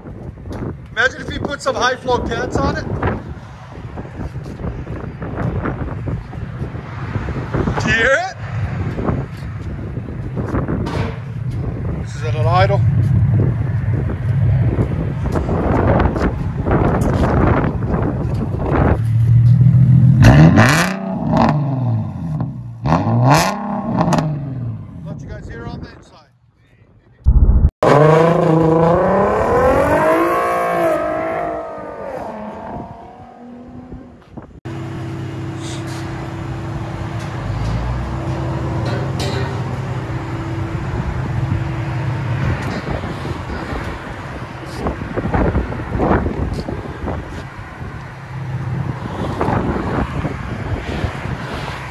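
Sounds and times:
wind buffeting microphone: 0:00.0 - 0:19.4, 0:40.8 - 0:51.9
car engine idling and revving: 0:02.7 - 0:25.2, 0:27.3 - 0:51.9.

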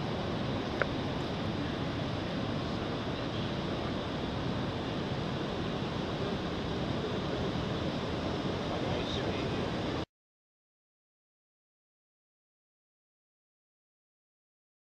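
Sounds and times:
steady rushing noise: 0:00.0 - 0:10.1.

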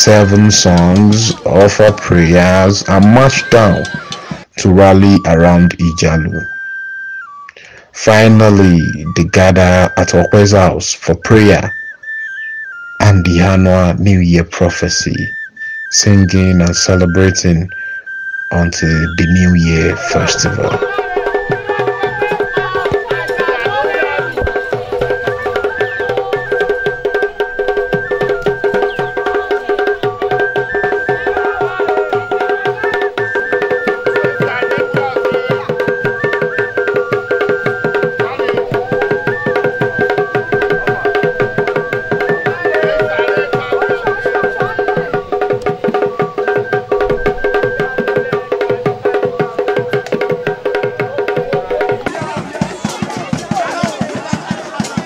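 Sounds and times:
rapid dense drumming: 0:00.0 - 0:05.0, 0:19.2 - 0:55.0
high piping melody: 0:00.0 - 0:53.9.

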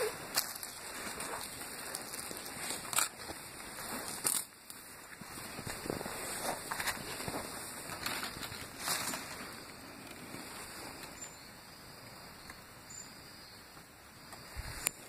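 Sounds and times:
rustling of grass and leaves: 0:00.0 - 0:12.3, 0:14.2 - 0:15.0.

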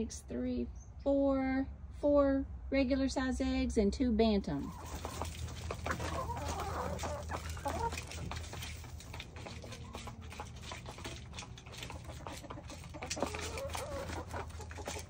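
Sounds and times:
chickens clucking: 0:04.6 - 0:15.0
clicks and scratches: 0:04.7 - 0:15.0.

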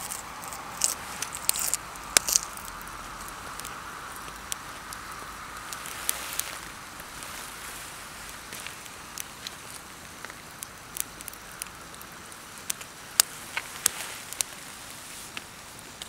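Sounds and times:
campfire crackling and popping: 0:00.0 - 0:16.0.

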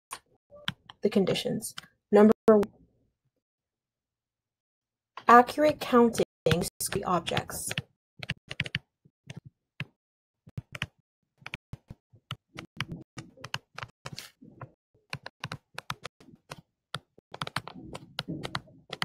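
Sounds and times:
stylus tapping and scratching: 0:05.2 - 0:19.0.

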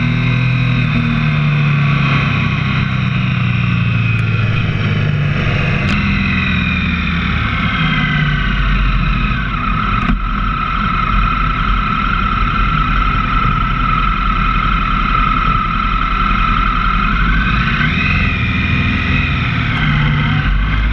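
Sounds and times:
motorcycle engine: 0:00.0 - 0:20.9
wind and road noise: 0:00.0 - 0:20.9.

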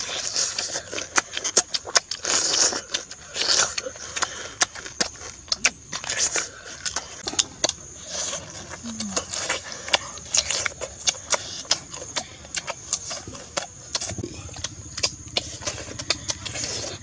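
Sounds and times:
people chewing and lip-smacking: 0:00.0 - 0:17.0
low steady hum: 0:11.9 - 0:17.0.

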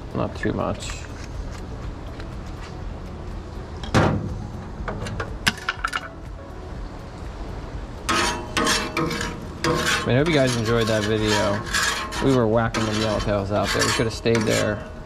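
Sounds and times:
steady low rumble: 0:00.0 - 0:15.0
metal spatula scraping griddle: 0:08.1 - 0:15.0.

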